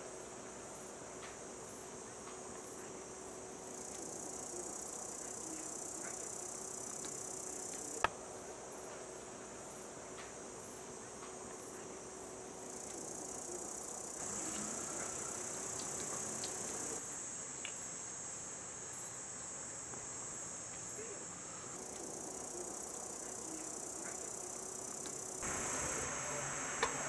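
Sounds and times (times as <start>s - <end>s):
insects shrilling: 3.7s - 8.1s, 12.6s - 18.0s, 20.3s - 27.0s.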